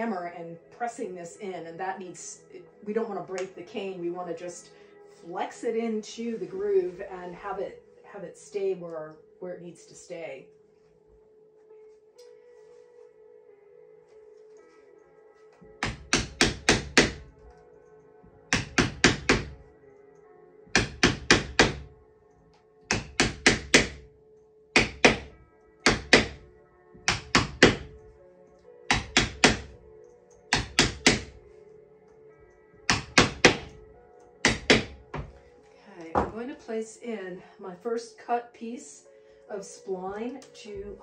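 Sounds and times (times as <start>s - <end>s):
soft background music: 0.0s - 41.0s
wooden mallet tapping a wedge: 15.8s - 17.2s, 18.5s - 19.6s, 22.9s - 24.0s, 24.8s - 26.4s, 27.0s - 27.9s, 28.9s - 29.7s, 30.5s - 31.4s, 32.9s - 33.8s, 34.4s - 35.3s.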